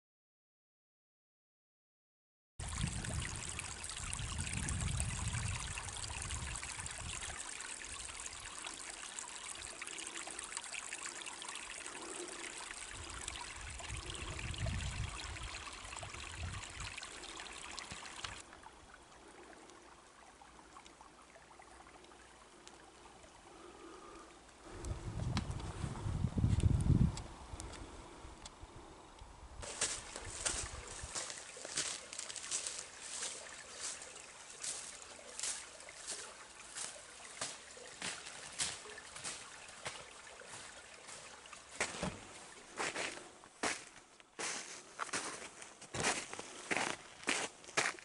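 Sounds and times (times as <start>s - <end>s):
creek running: 2.6s - 28.9s, 29.6s - 48.0s
faint steady hiss: 15.2s - 48.0s.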